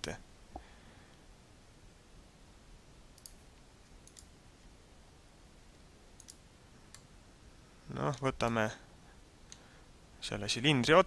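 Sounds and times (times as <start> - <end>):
computer mouse clicks: 3.2 - 3.4, 4.0 - 4.3, 6.2 - 7.1.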